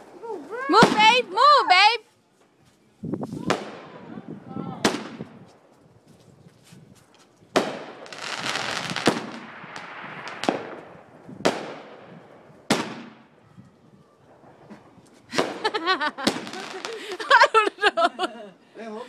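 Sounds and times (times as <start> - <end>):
firecrackers crackling: 0.0 - 2.0, 3.2 - 4.2, 4.8 - 5.8, 7.2 - 13.4, 14.2 - 17.6
firework bangs echoing: 0.8 - 1.3, 4.8 - 5.4, 7.5 - 13.4, 15.3 - 17.1
firecracker pops: 4.8 - 5.5, 7.5 - 12.0, 12.7 - 13.3, 14.6 - 17.1.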